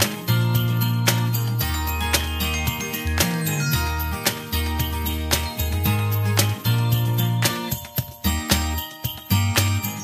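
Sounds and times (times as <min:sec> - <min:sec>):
bass line: 0:00.0 - 0:07.5
instrumental background music: 0:00.0 - 0:10.0
sharp percussive strikes: 0:00.0 - 0:10.0.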